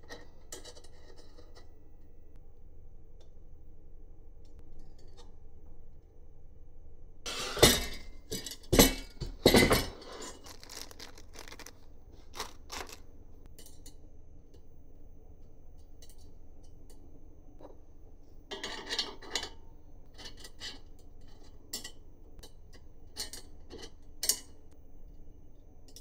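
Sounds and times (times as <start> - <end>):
small parts and tools clinking: 7.5 - 14.0.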